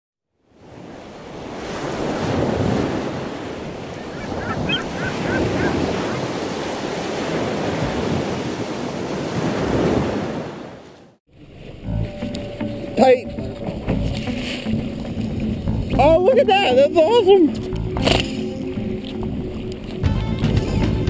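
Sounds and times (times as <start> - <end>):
ocean waves washing: 0.4 - 21.0
high chirps: 4.0 - 6.2.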